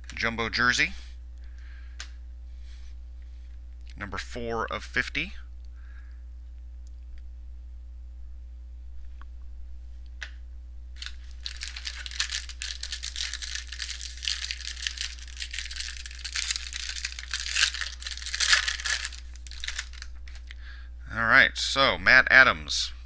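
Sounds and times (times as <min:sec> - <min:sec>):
steady low hum: 0:00.0 - 0:23.0
cards being handled: 0:11.0 - 0:20.5
wrapper tearing and crinkling: 0:11.0 - 0:20.5.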